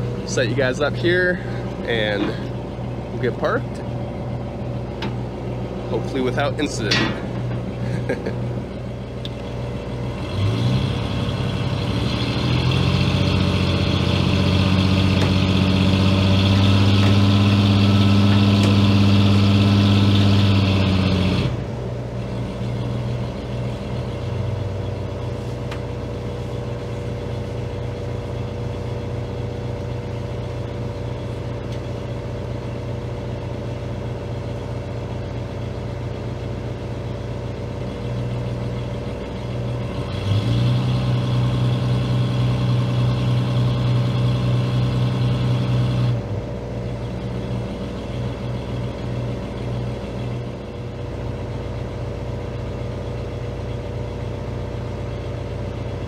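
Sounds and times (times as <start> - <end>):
boat engine running: 0.0 - 42.3.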